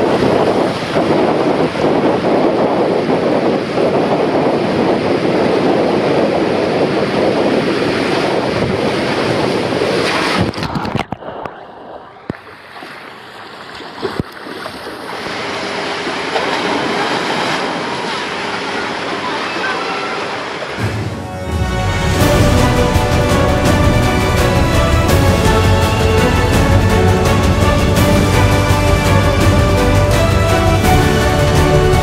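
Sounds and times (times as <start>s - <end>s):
running water: 0.0s - 32.0s
water rushing inside a tube slide: 0.0s - 32.0s
splash into water: 9.9s - 20.8s.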